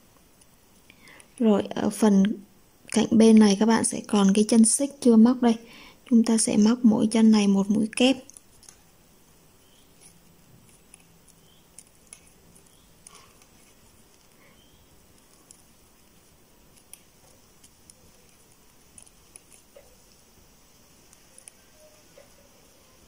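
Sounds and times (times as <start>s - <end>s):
crochet hook clicking on yarn: 15.0s - 20.2s.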